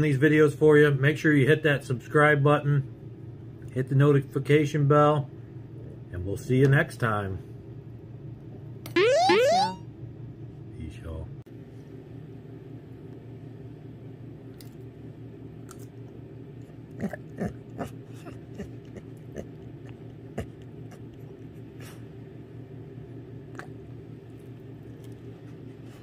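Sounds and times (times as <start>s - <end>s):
steady low hum: 7.0s - 26.0s.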